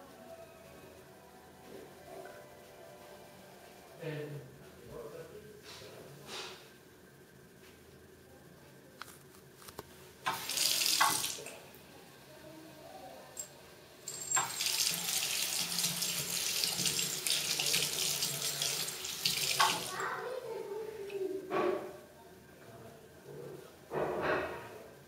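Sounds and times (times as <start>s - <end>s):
water running into sink: 10.3s - 11.6s, 14.1s - 20.1s.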